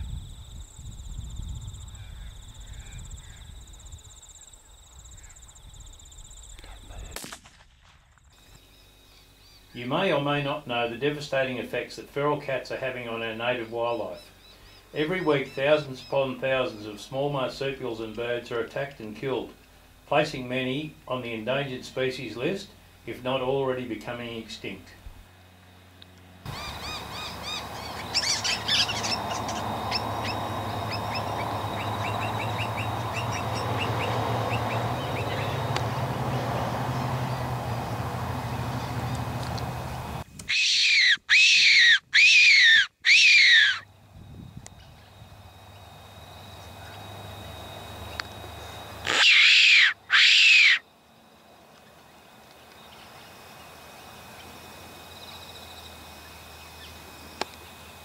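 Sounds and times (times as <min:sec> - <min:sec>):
birds chirping: 0:08.4 - 0:18.4, 0:26.2 - 0:50.9
predator call whistle: 0:40.5 - 0:43.9, 0:49.0 - 0:50.8.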